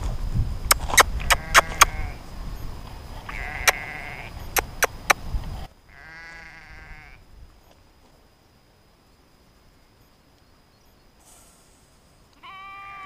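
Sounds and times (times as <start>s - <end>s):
sharp clicks: 0.6s - 2.0s, 3.3s - 3.8s, 4.4s - 5.3s
sheep bleating: 1.2s - 2.2s, 3.3s - 4.4s, 5.9s - 7.2s, 12.4s - 13.0s.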